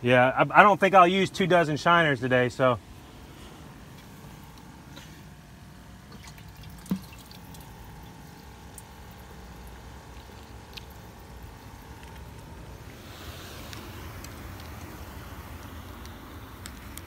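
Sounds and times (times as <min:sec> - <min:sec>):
faint steady hum: 0:00.0 - 0:17.0
water dripping and splashing: 0:06.1 - 0:12.5.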